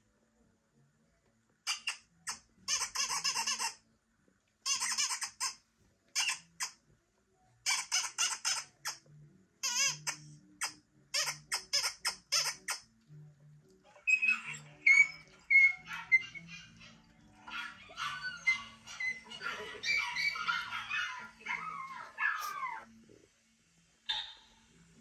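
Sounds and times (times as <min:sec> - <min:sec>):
high-pitched squeaking bursts: 0:13.9 - 0:17.0.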